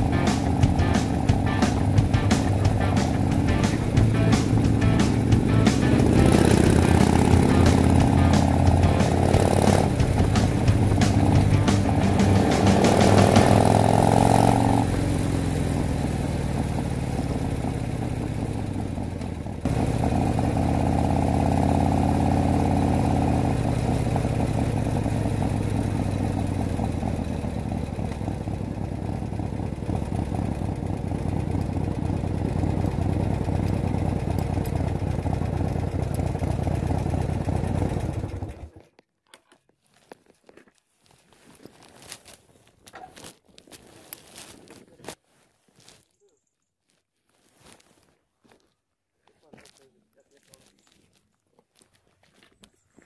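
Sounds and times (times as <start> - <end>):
muffled motorcycle engine running: 0.0 - 38.9.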